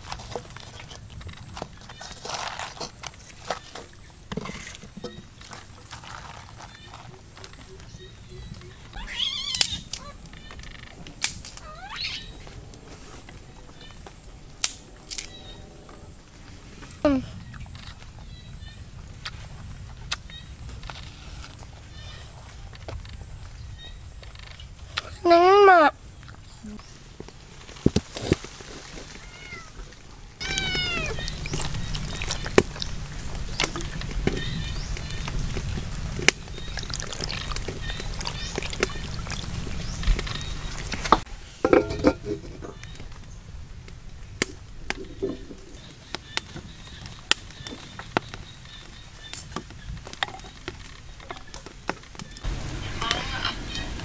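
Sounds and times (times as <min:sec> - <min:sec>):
wood fire crackling: 0:00.0 - 0:25.2, 0:25.9 - 0:54.0
cat meowing: 0:08.9 - 0:10.2, 0:29.2 - 0:29.8, 0:30.4 - 0:31.3.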